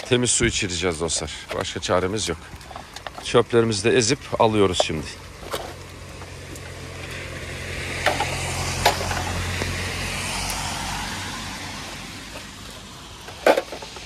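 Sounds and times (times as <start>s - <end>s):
low engine hum: 0.0s - 14.0s
tyre hiss on wet road: 0.2s - 14.0s.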